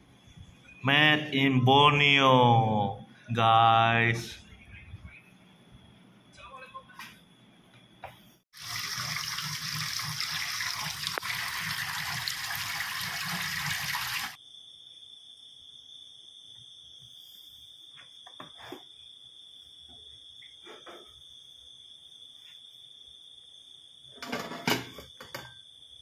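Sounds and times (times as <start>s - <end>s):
water running onto vegetables: 8.6s - 14.4s.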